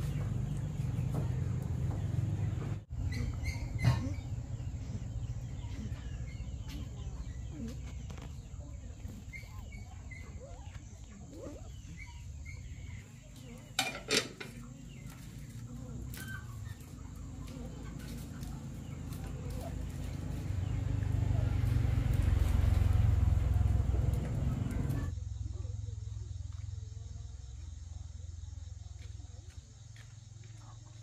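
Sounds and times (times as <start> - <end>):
fowl clucking and chirping: 2.5 - 20.7.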